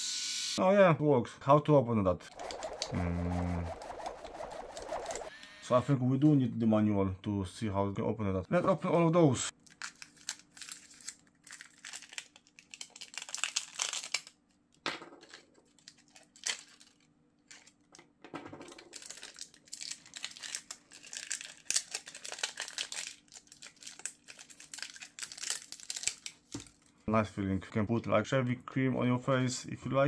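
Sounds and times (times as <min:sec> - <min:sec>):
plastic film crinkling and tearing: 0:09.5 - 0:14.4, 0:15.6 - 0:17.8, 0:18.7 - 0:26.9.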